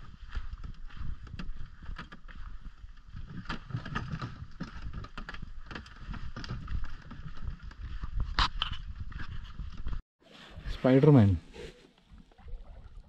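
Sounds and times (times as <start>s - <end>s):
canoe knocking and rattling: 0.4s - 10.0s.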